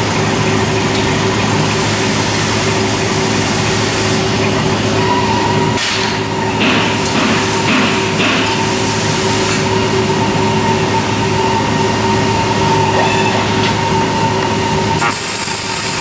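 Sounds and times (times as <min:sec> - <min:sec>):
welding robot machine hum: 0:05.7 - 0:16.0
high-pitched whine: 0:08.6 - 0:16.0.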